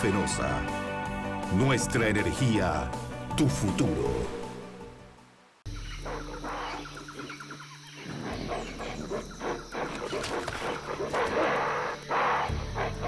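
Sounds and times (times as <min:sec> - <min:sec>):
animal trilling calls: 0:05.7 - 0:13.0
rough animal calls: 0:05.7 - 0:13.0.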